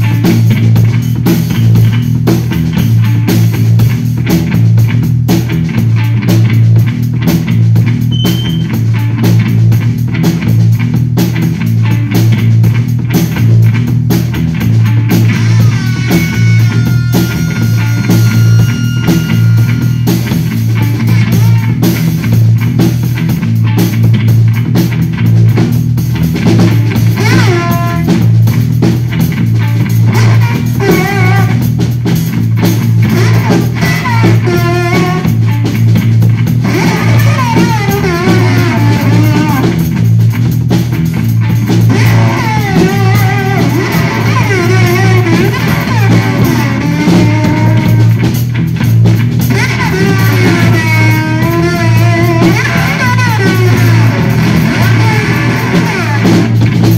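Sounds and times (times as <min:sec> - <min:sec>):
bass guitar pulsing: 0:00.0 - 0:56.9
drumming: 0:00.0 - 0:56.9
high wavering tones: 0:15.4 - 0:20.6.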